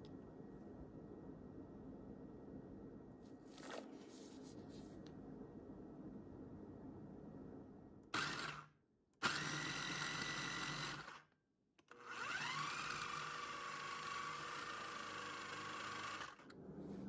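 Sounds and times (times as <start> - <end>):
food processor motor whine: 8.2 - 11.2, 11.9 - 16.5.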